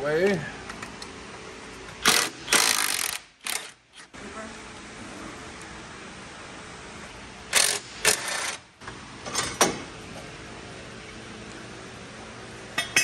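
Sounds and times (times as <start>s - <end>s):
impact wrench bursts: 2.0s - 4.0s, 7.5s - 8.7s.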